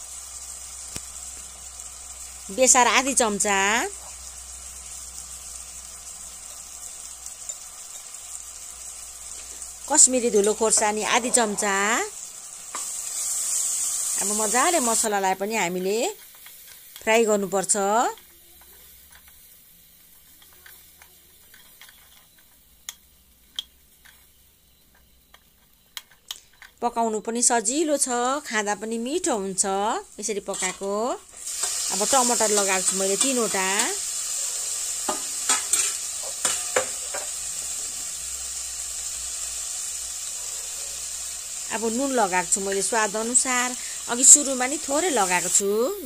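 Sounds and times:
masala sizzling in oil: 0:00.0 - 0:46.0.

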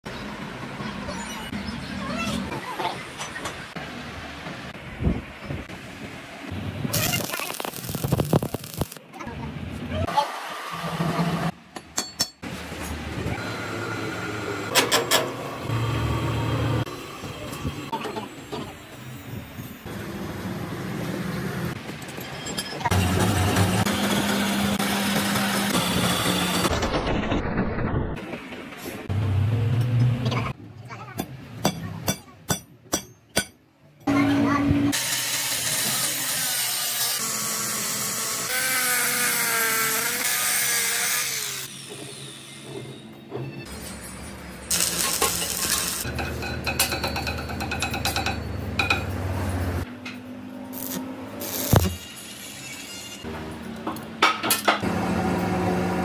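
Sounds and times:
angle grinder cutting steel: 0:34.9 - 0:42.7, 0:44.7 - 0:46.2, 0:50.7 - 0:53.3.

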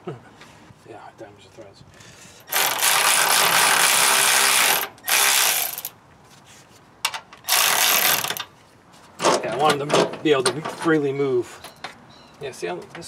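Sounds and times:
power tool running in bursts: 0:02.5 - 0:05.9, 0:07.5 - 0:08.4.

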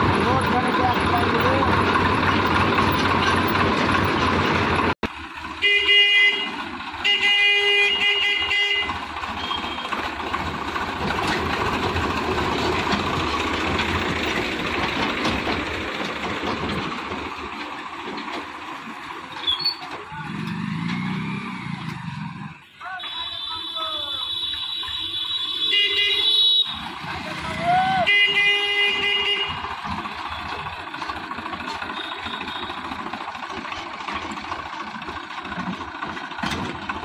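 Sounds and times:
tractor diesel engine running: 0:00.0 - 0:37.0
vehicle horn toots: 0:05.6 - 0:10.0, 0:22.5 - 0:26.9, 0:27.9 - 0:30.5, 0:31.8 - 0:33.0.

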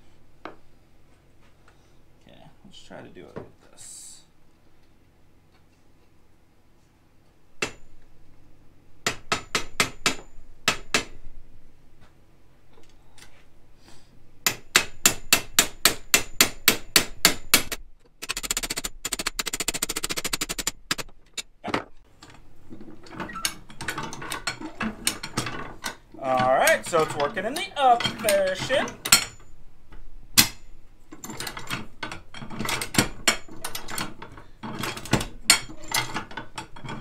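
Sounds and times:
hammer striking steel: 0:14.4 - 0:17.8.

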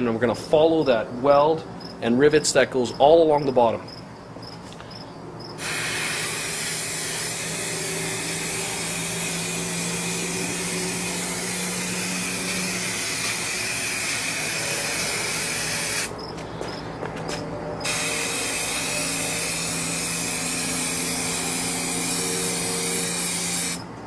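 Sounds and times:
aerosol can spraying hiss: 0:05.6 - 0:16.1, 0:17.9 - 0:23.8.

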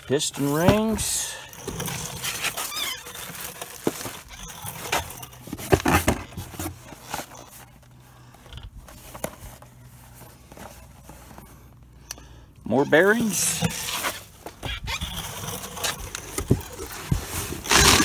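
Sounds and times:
cardboard boxes knocking and rustling: 0:00.4 - 0:07.8, 0:16.2 - 0:18.0.

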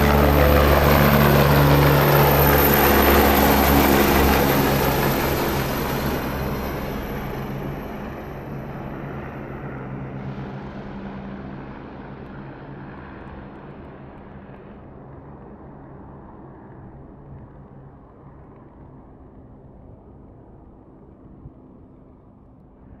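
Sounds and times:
helicopter rotor hum: 0:00.0 - 0:13.5.

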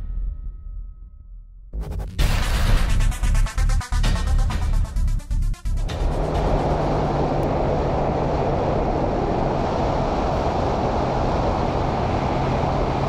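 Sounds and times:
outboard motor humming: 0:05.7 - 0:13.0
rush of wind and water: 0:06.2 - 0:13.0.

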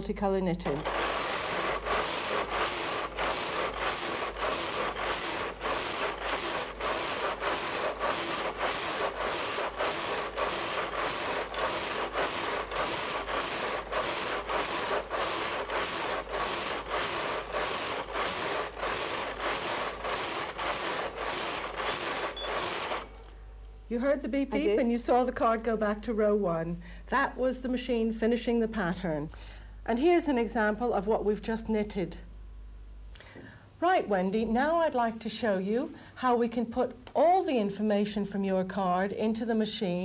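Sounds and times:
knitting machine carriage rattling: 0:00.6 - 0:23.2.

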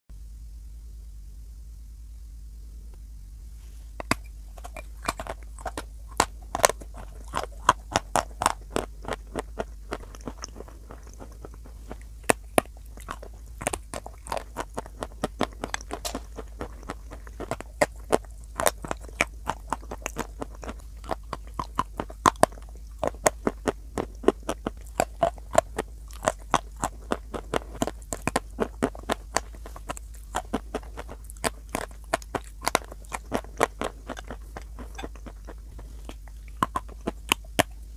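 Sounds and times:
chalk being chewed crunching: 0:04.0 - 0:37.9.

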